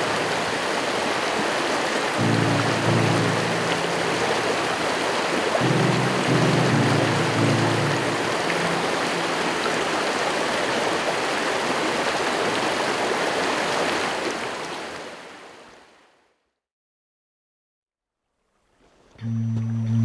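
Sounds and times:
brook running over rocks: 0:00.0 - 0:15.5.

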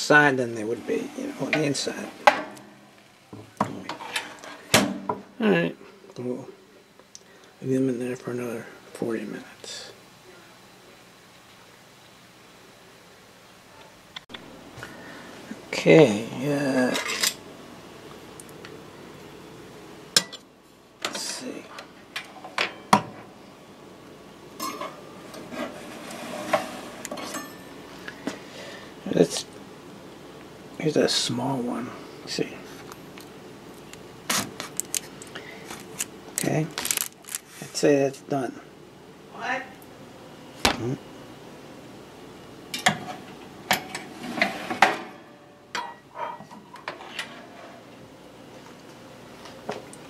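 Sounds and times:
metal tray scraping wire rack: 0:00.6 - 0:02.7, 0:24.6 - 0:27.6, 0:43.9 - 0:45.2.

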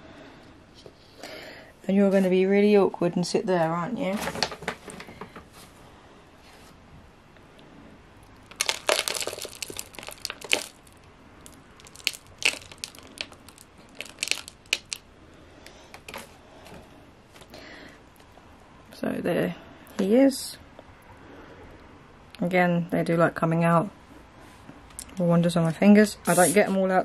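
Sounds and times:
soil crackling into plastic cup: 0:08.4 - 0:15.0.

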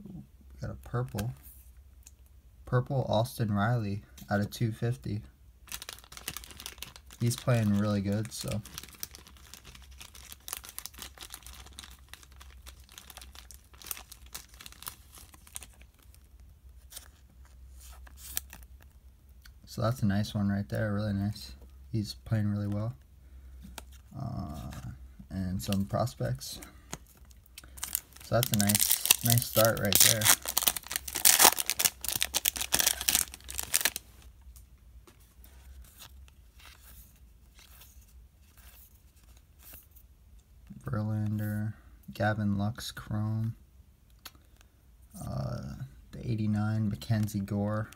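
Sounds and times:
plastic sleeve crinkling: 0:05.6 - 0:19.0, 0:25.6 - 0:40.0.

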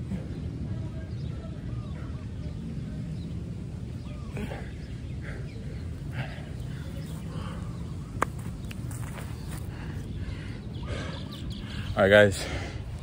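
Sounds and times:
steady low rumble: 0:00.0 - 0:13.0
faint bird calls: 0:03.9 - 0:12.7.

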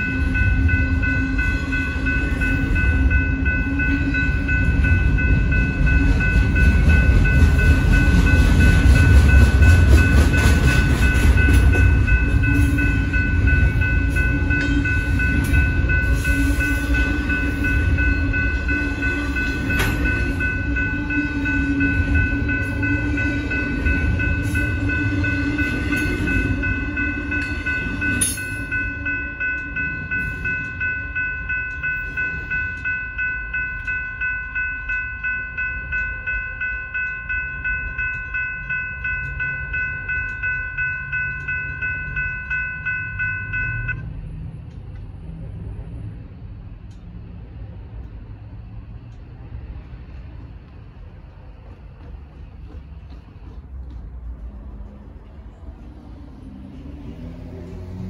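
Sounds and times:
railroad crossing bell ringing: 0:00.0 - 0:50.2, 0:52.3 - 0:58.0
freight train passing: 0:00.0 - 0:58.0.

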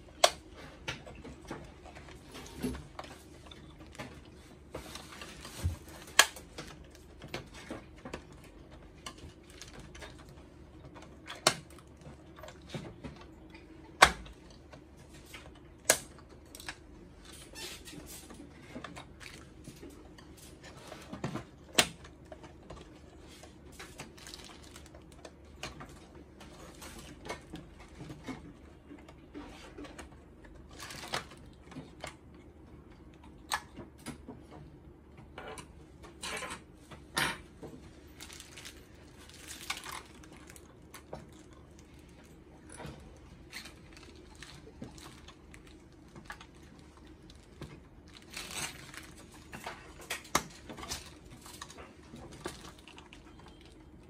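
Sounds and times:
plastic sheet crinkling: 0:22.9 - 0:25.9, 0:30.6 - 0:31.7, 0:37.8 - 0:53.8.

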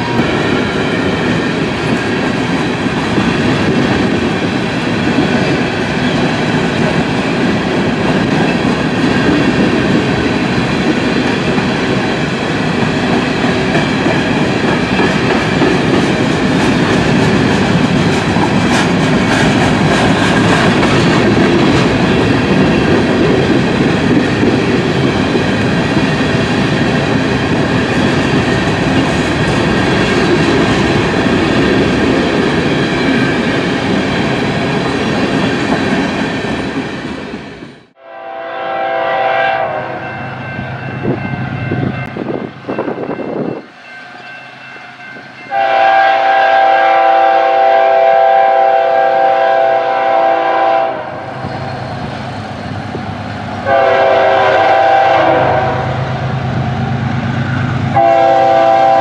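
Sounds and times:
freight train rumbling on rails: 0:00.0 - 0:59.0
locomotive air horn blasts: 0:38.0 - 0:40.0, 0:45.5 - 0:51.3, 0:53.6 - 0:56.0, 0:58.0 - 0:59.0.

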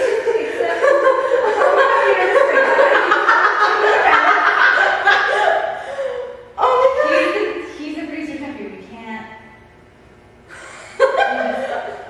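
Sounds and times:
women laughing hard: 0:00.0 - 0:07.3, 0:10.5 - 0:12.0.

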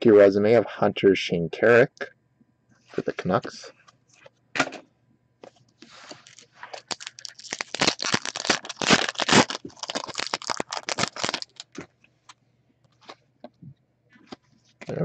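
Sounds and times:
foil wrapper tearing and crinkling: 0:06.1 - 0:11.8.

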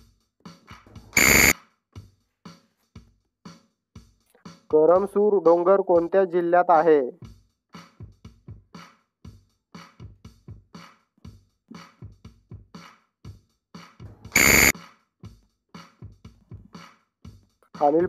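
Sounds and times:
electronic timer ticking: 0:01.2 - 0:01.5, 0:14.4 - 0:14.7
loud alarm buzz: 0:01.2 - 0:01.5, 0:14.4 - 0:14.7.

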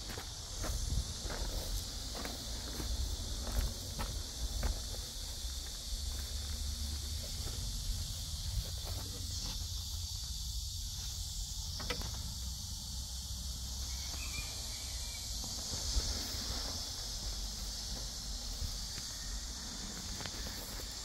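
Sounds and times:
insects droning: 0:00.0 - 0:21.0
wind rumble on microphone: 0:00.4 - 0:09.0.

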